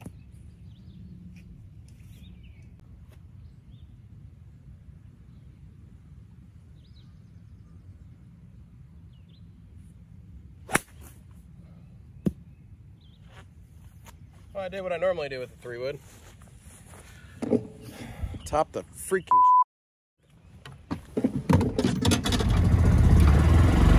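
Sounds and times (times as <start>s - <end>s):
golf club striking ball: 10.7s - 11.0s.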